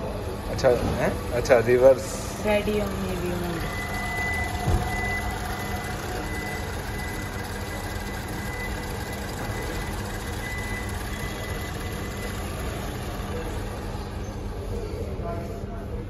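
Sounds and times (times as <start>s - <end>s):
steady mechanical hum: 0.0s - 16.0s.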